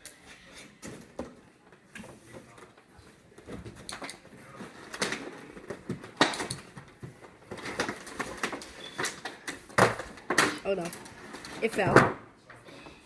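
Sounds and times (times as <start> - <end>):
plastic packaging rustling: 3.6 - 11.9.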